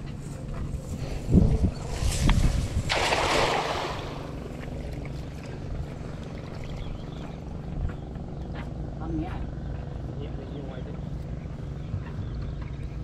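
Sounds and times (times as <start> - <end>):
steady low hum: 0.0 - 13.0
net splashing into water: 1.9 - 5.0.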